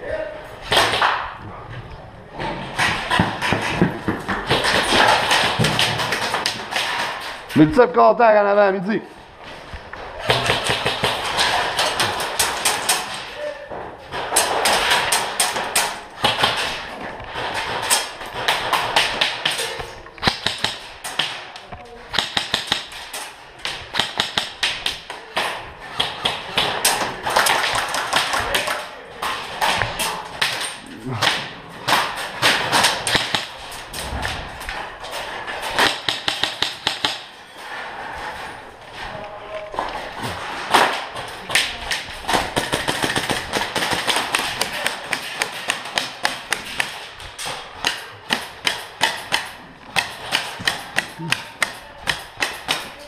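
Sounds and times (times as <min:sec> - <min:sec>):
airsoft guns firing: 0:00.7 - 0:01.4, 0:02.8 - 0:07.4, 0:10.2 - 0:13.3, 0:14.1 - 0:34.0, 0:34.7 - 0:37.4, 0:39.8 - 0:53.0
pellets hitting plywood: 0:02.4 - 0:07.6, 0:10.0 - 0:53.0.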